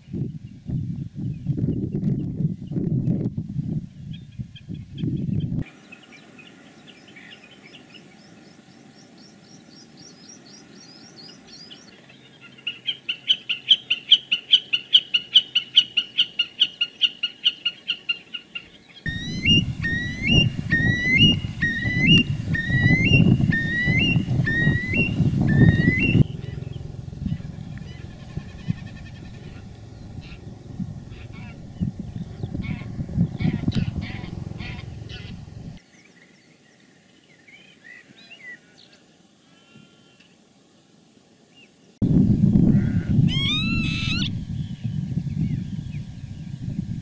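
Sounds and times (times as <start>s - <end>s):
bird's rapid chipping song: 9.5s - 35.8s, 43.3s - 46.0s
bird's rising hooked call: 19.1s - 35.8s, 42.7s - 46.5s
loud low rumbling noise: 19.1s - 35.8s, 42.0s - 47.0s.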